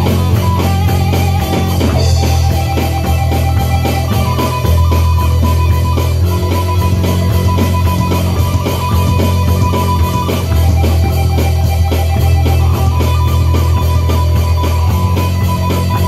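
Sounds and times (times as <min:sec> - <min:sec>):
electric guitar riff: 0:00.0 - 0:16.0
electronic drum beat: 0:00.0 - 0:16.0.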